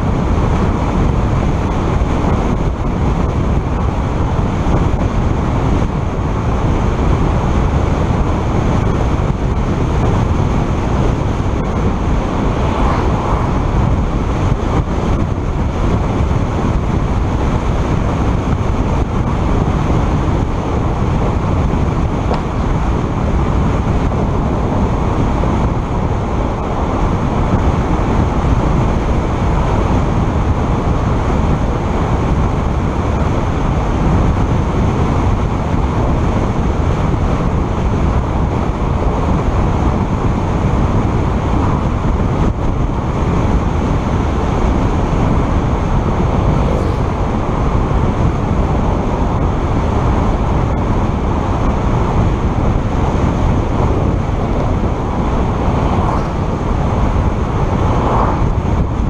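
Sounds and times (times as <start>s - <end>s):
wind buffeting microphone: 0.0s - 59.0s
wind rush: 0.0s - 59.0s
tyre noise on asphalt: 3.1s - 30.0s, 43.2s - 59.0s.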